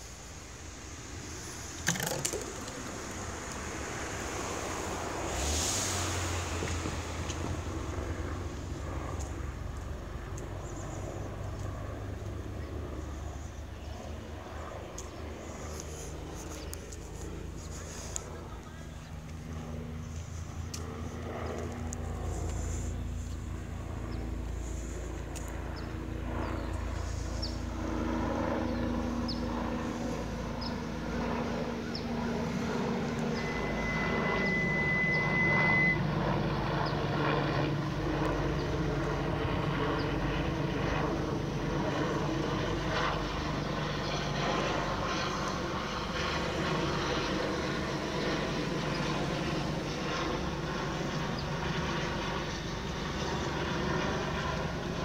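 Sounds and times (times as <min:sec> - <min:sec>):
helicopter rotor and turbine drone: 0:00.0 - 0:55.0
high steady tone: 0:33.0 - 0:36.2.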